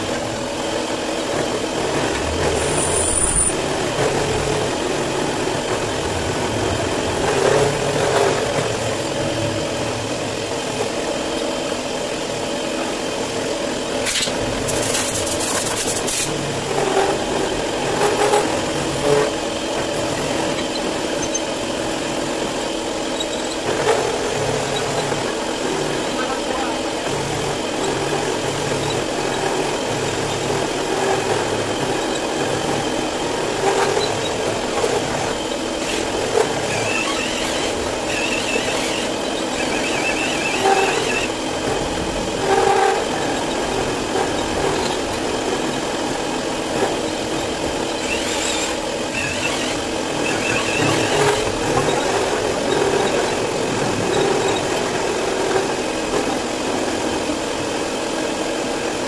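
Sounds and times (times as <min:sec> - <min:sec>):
milling machine cutting metal: 0:00.0 - 0:58.0
high-pitched cutting squeal: 0:01.9 - 0:04.8, 0:35.6 - 0:41.5, 0:47.8 - 0:52.2.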